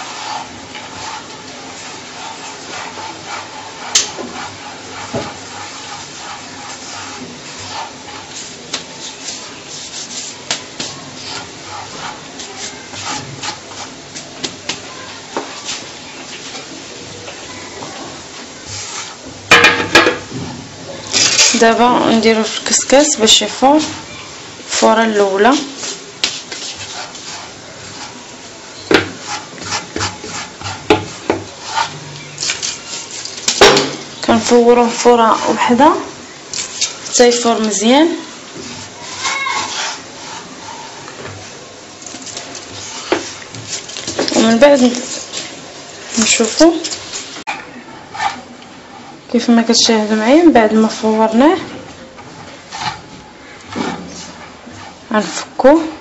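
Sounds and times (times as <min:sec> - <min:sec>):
hands raking grains on a tray: 0:00.0 - 0:16.7, 0:18.3 - 0:19.3, 0:24.7 - 0:28.2, 0:28.8 - 0:33.6, 0:36.5 - 0:41.0, 0:42.0 - 0:48.5, 0:52.6 - 0:56.0.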